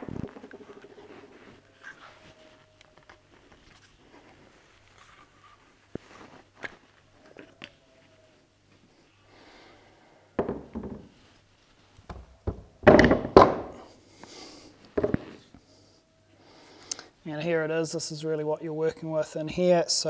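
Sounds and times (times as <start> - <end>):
rifle thudding on wooden bench: 10.4 - 11.1, 12.1 - 13.8.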